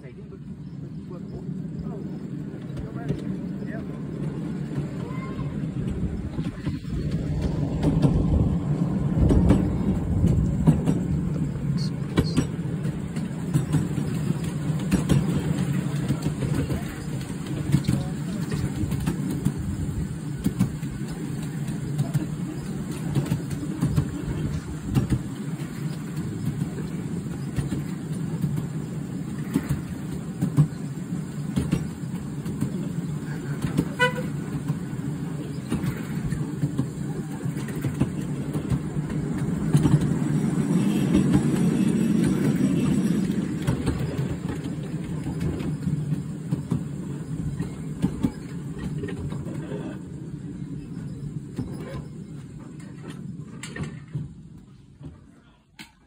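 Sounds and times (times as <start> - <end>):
train wheels rumbling on track: 0.0 - 56.0
train toot: 33.4 - 34.8, 40.3 - 44.3.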